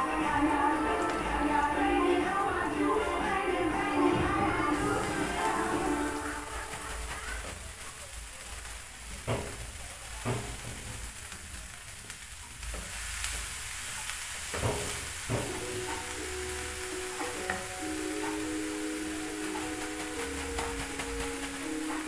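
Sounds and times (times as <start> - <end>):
music with held notes: 0.0 - 7.1, 15.4 - 22.0
greens sizzling in a pan: 0.0 - 22.0
wooden spoon knocking pan: 14.5 - 16.1, 19.4 - 22.0.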